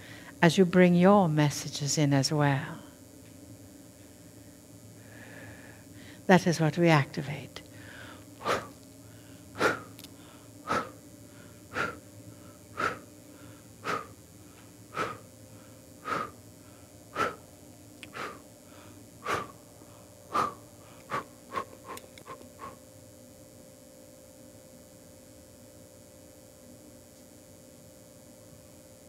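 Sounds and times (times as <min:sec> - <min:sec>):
faint steady hum: 0:00.0 - 0:29.0
short sharp breaths: 0:07.7 - 0:22.8.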